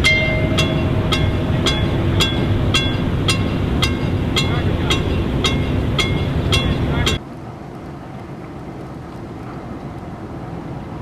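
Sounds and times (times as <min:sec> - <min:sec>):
loud low rumble: 0:00.0 - 0:07.2
ringing signal strikes: 0:00.0 - 0:07.2
boat engine rumble: 0:00.0 - 0:11.0
wind on microphone: 0:00.0 - 0:11.0.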